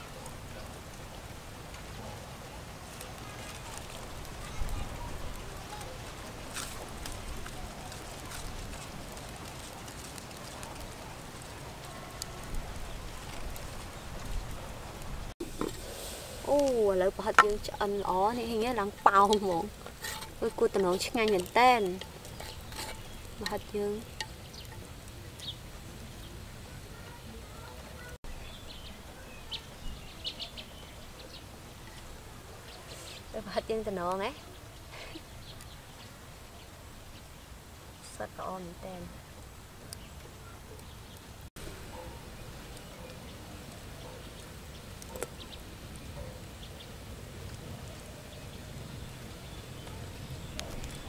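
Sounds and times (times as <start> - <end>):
low rush of wind: 0.0 - 51.0
birds chirping: 16.4 - 51.0.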